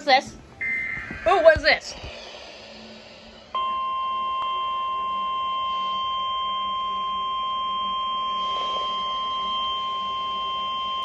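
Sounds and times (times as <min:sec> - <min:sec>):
steady alert tone: 0:00.6 - 0:05.9.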